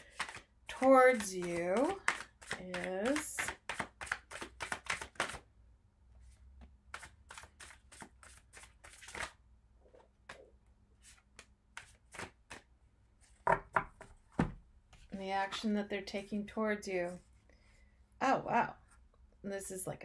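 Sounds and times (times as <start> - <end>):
cards being shuffled: 0.0 - 5.4, 6.9 - 9.4, 11.0 - 12.7.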